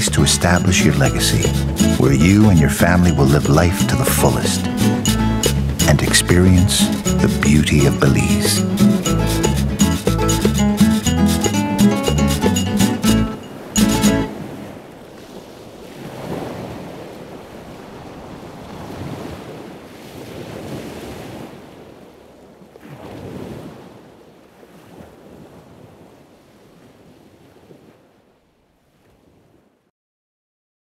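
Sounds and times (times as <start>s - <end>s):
ocean waves washing in: 0.0s - 29.8s.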